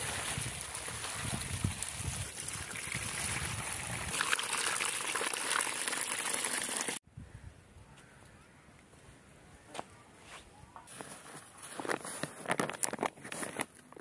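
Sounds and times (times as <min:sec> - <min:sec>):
water splashing into plastic basin: 0:00.0 - 0:07.0.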